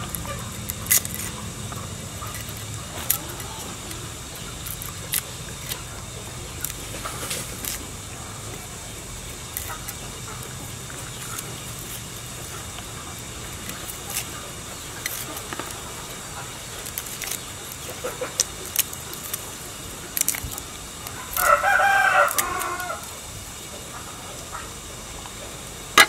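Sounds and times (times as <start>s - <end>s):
garlic cloves being peeled: 0.0s - 26.0s
rooster crowing: 21.2s - 23.2s.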